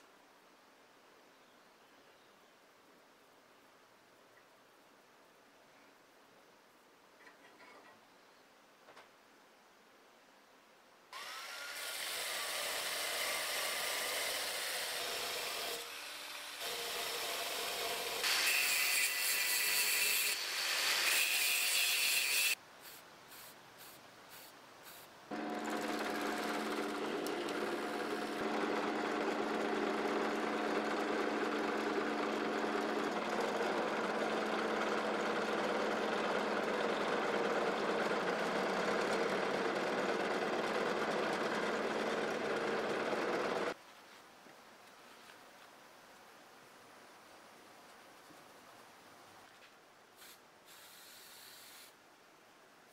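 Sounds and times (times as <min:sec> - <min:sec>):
wire brush wheel scouring metal: 0:25.3 - 0:43.7
drill press motor running: 0:25.3 - 0:43.8.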